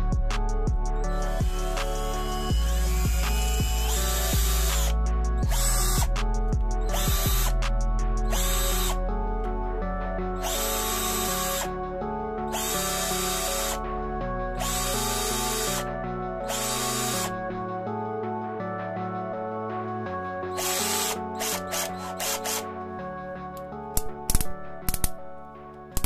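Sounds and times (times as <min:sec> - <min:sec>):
background music: 0:00.0 - 0:26.0
cordless drill running: 0:01.1 - 0:06.1, 0:06.9 - 0:07.6, 0:08.3 - 0:09.0, 0:10.4 - 0:11.7, 0:12.5 - 0:13.8, 0:14.6 - 0:15.8, 0:16.5 - 0:17.3, 0:20.6 - 0:22.6.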